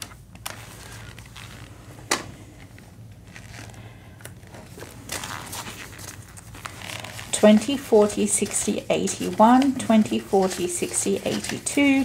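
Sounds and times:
low steady hum: 0:00.0 - 0:12.0
banknotes handled: 0:04.5 - 0:12.0.

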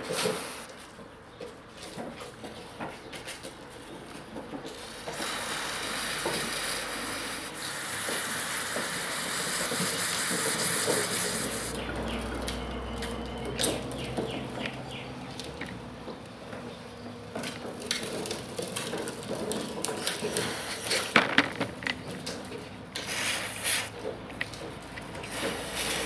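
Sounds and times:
aerosol spray hiss: 0:05.2 - 0:11.7.

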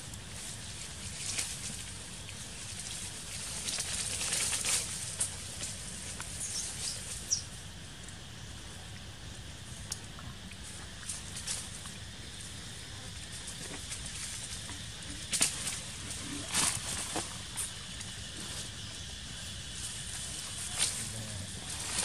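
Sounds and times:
dry leaves crackling and rustling: 0:00.1 - 0:07.4, 0:13.4 - 0:18.6, 0:19.6 - 0:22.0.

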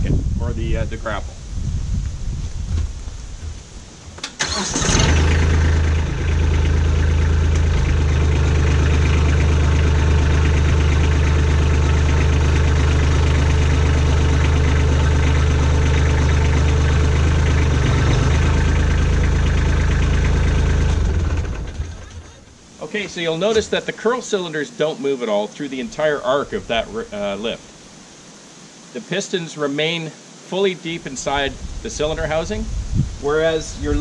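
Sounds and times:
starter cranking: 0:04.2 - 0:22.5
diesel engine running: 0:04.4 - 0:23.7.

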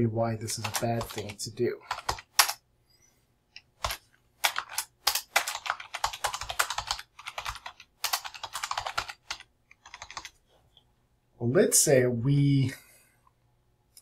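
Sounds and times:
typing on a computer keyboard: 0:00.6 - 0:02.6, 0:03.8 - 0:10.4.

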